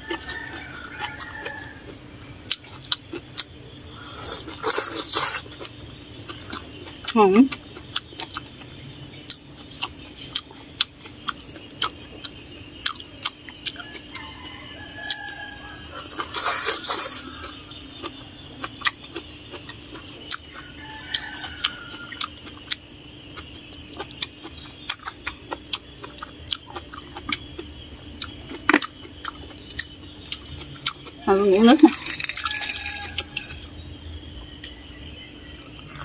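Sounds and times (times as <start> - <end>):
wet chewing clicks: 2.4 - 3.6, 4.2 - 33.8, 34.4 - 36.0.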